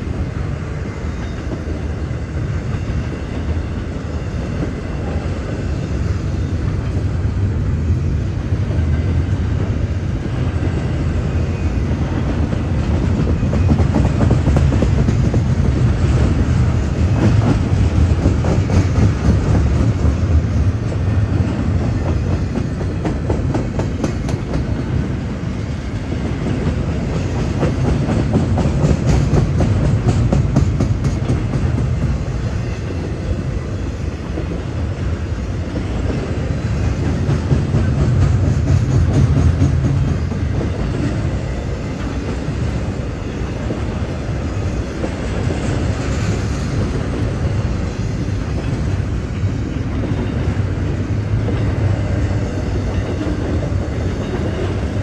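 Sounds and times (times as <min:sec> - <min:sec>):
freight train rumbling: 0:00.0 - 0:55.0.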